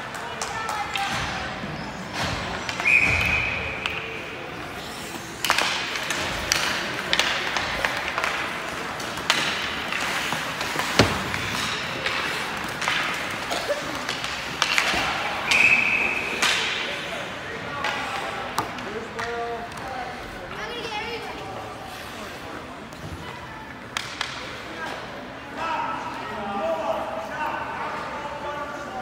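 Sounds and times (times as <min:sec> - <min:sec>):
hockey sticks clacking on puck: 0:00.0 - 0:21.3, 0:23.7 - 0:25.1
skates scraping ice: 0:01.7 - 0:23.2.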